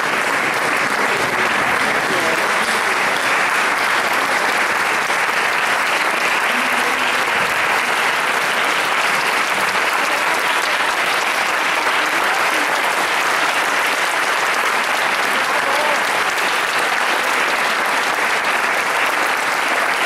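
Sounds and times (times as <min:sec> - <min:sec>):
audience applauding: 0:00.0 - 0:20.0.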